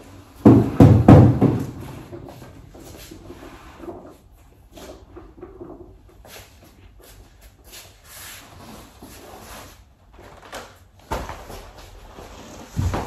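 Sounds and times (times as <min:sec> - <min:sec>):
foam mat thud and scraping: 0:00.4 - 0:02.3, 0:11.1 - 0:13.0.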